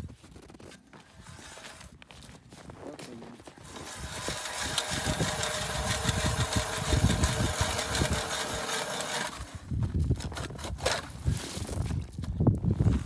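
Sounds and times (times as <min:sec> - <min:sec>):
ice crunching: 0:00.0 - 0:12.2
ice auger grinding through ice: 0:00.9 - 0:02.0, 0:03.4 - 0:11.7.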